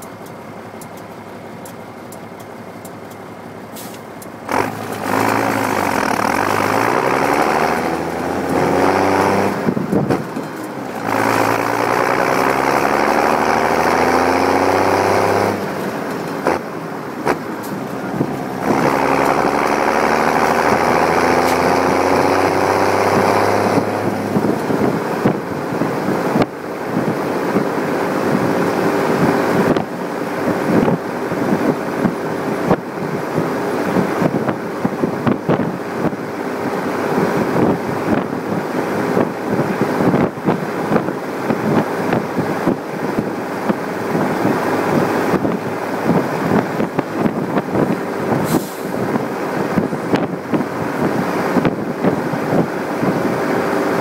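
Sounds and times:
tractor diesel drone: 0.0 - 54.0
cab rattling and clattering: 9.6 - 12.1.

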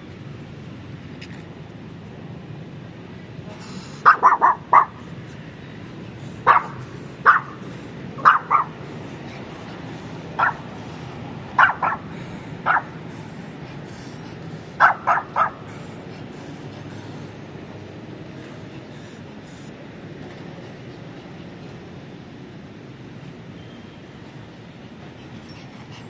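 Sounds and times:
small dog yapping: 4.0 - 4.9, 6.5 - 7.5, 8.2 - 8.7, 14.8 - 15.6.

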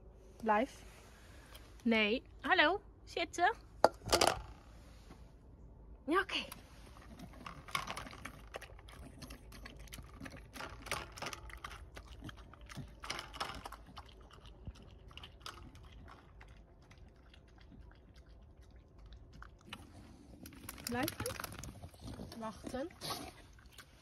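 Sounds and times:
dog chewing and lapping: 6.6 - 24.0
teeth clicking on metal bowl: 7.4 - 18.3.

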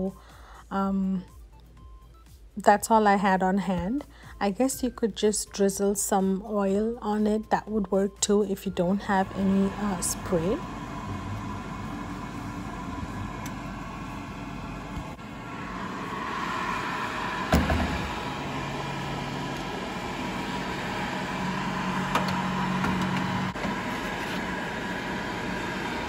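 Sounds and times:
air fryer fan whirring: 8.7 - 26.0.

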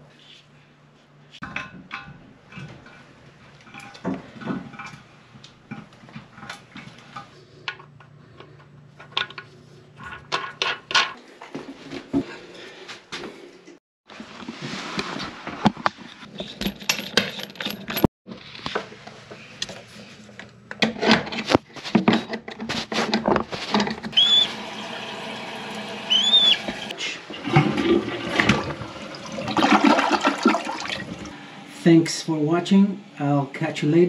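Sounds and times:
metal tools clicking and scraping: 16.2 - 18.1
toilet flushing: 24.1 - 31.4.

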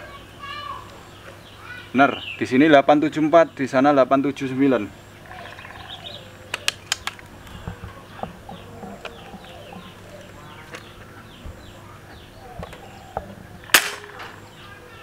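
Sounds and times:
birds chirping: 0.0 - 15.0
air rifle shot: 13.7 - 14.4.

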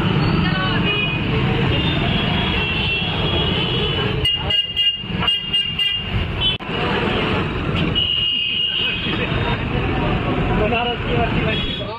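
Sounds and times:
rumble of engines: 0.0 - 11.9
vehicle horns honking: 0.3 - 6.6, 7.9 - 9.5.

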